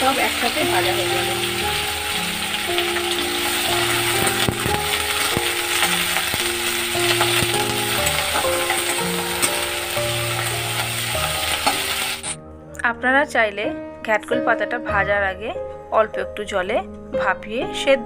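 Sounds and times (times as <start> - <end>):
leaves sizzling in hot oil: 0.0 - 12.4
background music: 0.0 - 18.0.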